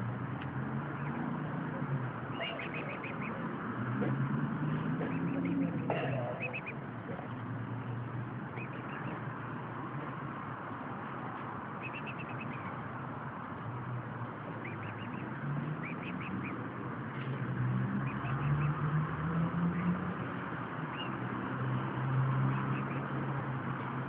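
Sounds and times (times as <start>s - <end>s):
steady background noise: 0.0s - 24.0s
cygnets peeping: 0.9s - 1.3s, 2.3s - 3.6s, 4.7s - 7.4s, 8.4s - 9.6s, 11.6s - 13.0s, 14.4s - 16.7s, 18.0s - 18.8s, 20.9s - 21.3s, 22.5s - 23.2s.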